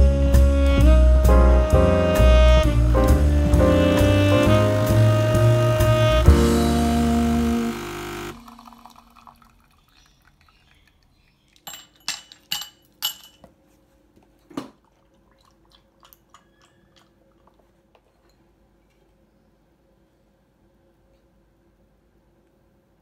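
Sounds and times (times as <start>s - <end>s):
jazz saxophone music: 0.0s - 8.4s
milk pouring over ice: 7.5s - 11.9s
ice cubes clinking into glass: 11.6s - 13.4s.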